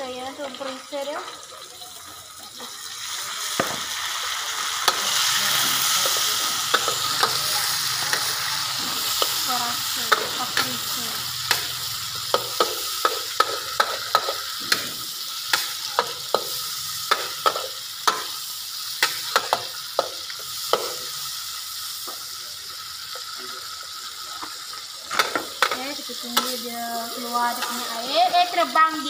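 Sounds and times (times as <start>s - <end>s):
mushrooms sizzling in oil: 0.0s - 29.0s
metal spatula scraping wok: 4.8s - 18.4s, 25.6s - 28.6s.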